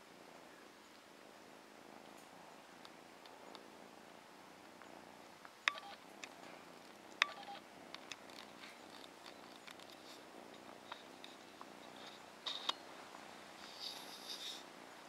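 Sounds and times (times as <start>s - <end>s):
kitten purring: 1.2s - 15.0s
small ticks: 2.0s - 3.7s, 4.7s - 14.7s
sharp clicks: 5.7s - 6.4s.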